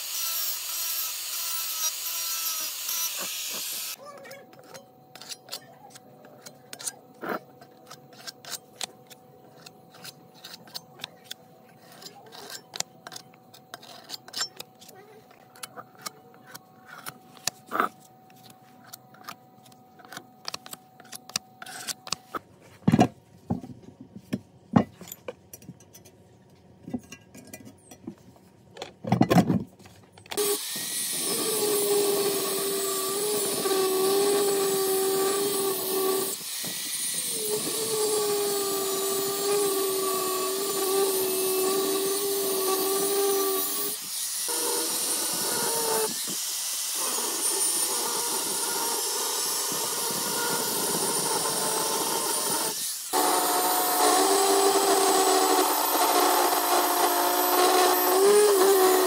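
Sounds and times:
tools and metal parts clicking: 4.5s - 17.8s, 24.8s - 28.2s.

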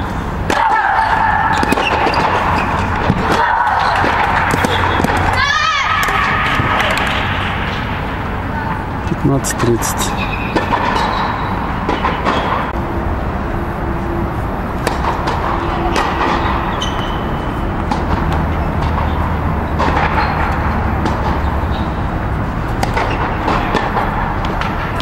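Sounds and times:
indoor hall noise: 0.0s - 25.0s
tennis balls knocking: 22.6s - 25.0s.

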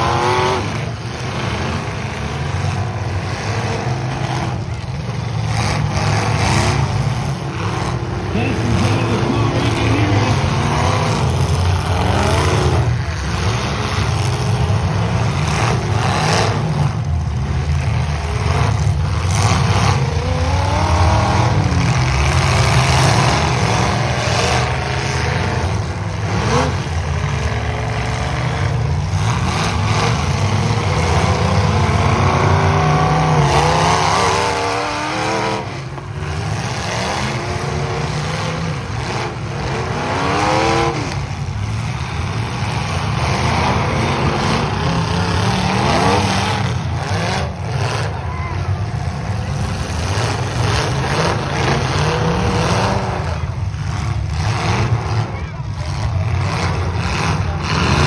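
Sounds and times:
car engines revving: 0.0s - 58.0s.

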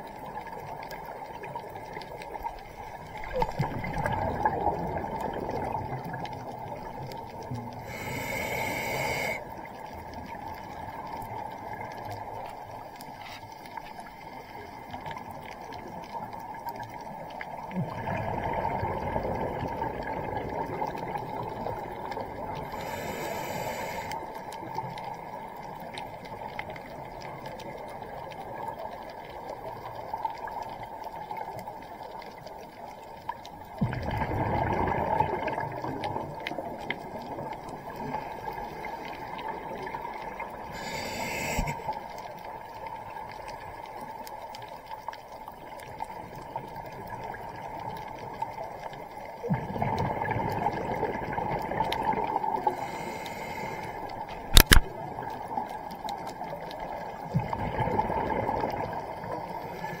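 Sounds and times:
exhaled bubbles gurgling: 0.0s - 13.7s, 14.3s - 60.0s
underwater low rumble: 0.0s - 60.0s
regulator inhale hiss: 7.8s - 9.5s, 22.6s - 24.4s, 40.7s - 42.2s, 52.6s - 54.4s, 59.6s - 60.0s
sharp click: 54.5s - 54.9s.

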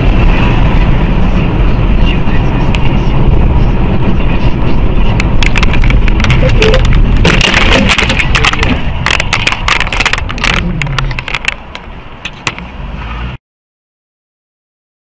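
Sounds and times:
vehicle crash crunching: 5.2s - 12.7s.

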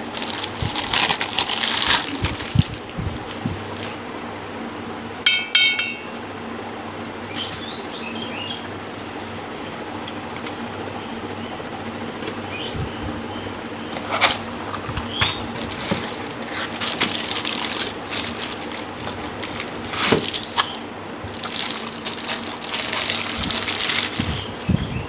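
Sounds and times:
cardboard rustling: 0.0s - 4.0s, 13.9s - 24.5s
plastic wrap crinkling: 0.0s - 4.0s, 14.0s - 24.6s.

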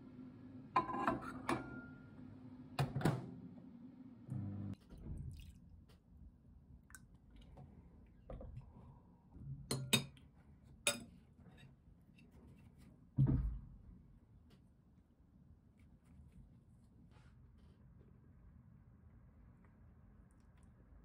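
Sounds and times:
cutlery clinking on ceramic bowl: 9.7s - 10.2s, 10.9s - 11.2s.

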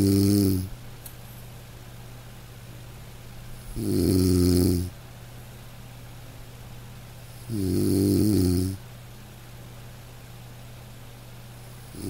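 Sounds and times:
man snoring: 0.0s - 0.7s, 3.7s - 4.9s, 7.4s - 8.8s
faint low hum: 0.0s - 12.0s.

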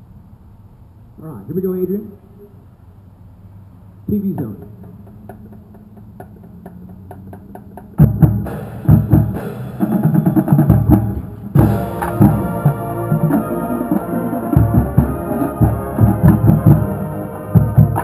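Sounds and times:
marching band playing: 4.2s - 18.0s.

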